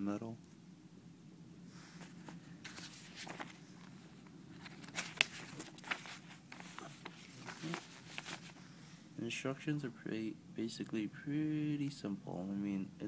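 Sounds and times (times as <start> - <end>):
paper rustling and crinkling: 1.9 - 8.6.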